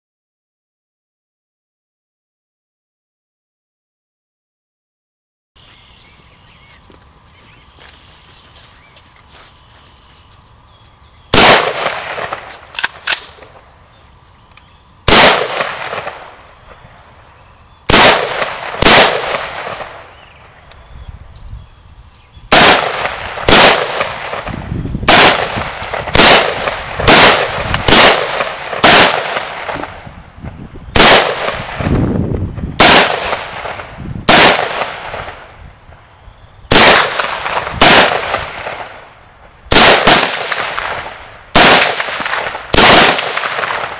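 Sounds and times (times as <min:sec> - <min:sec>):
rifle shots with echo: 0:11.3 - 0:13.5, 0:15.1 - 0:16.4, 0:17.9 - 0:20.2, 0:22.5 - 0:30.0, 0:30.9 - 0:32.0, 0:32.8 - 0:35.5, 0:36.7 - 0:39.1, 0:39.7 - 0:43.9.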